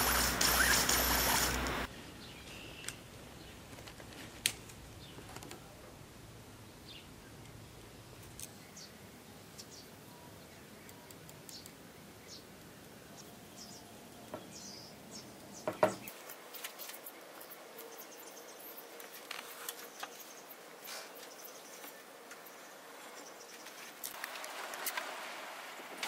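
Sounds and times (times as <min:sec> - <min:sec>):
tape measure clicking on wood: 0:00.0 - 0:01.8.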